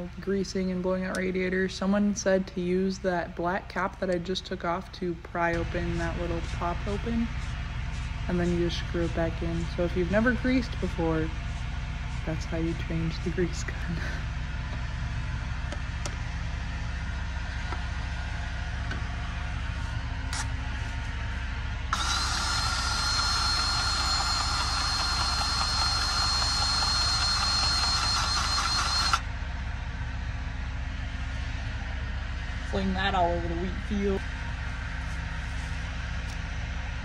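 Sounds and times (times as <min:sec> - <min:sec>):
low engine hum: 0:00.0 - 0:37.0
grease gun motor whine: 0:20.2 - 0:29.4.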